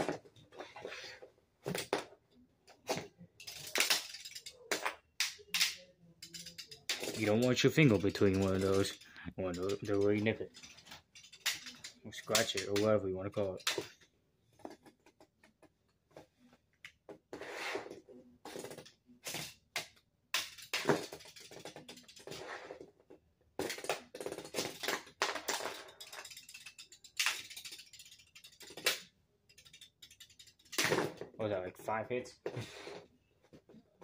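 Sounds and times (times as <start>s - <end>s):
plastic spinning tops clattering: 2.8s - 14.0s, 17.9s - 31.4s.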